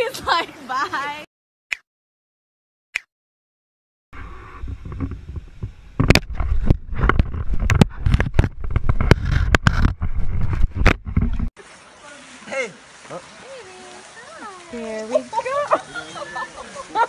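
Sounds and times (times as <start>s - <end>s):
teeth knocking and scraping plastic: 6.0s - 11.5s.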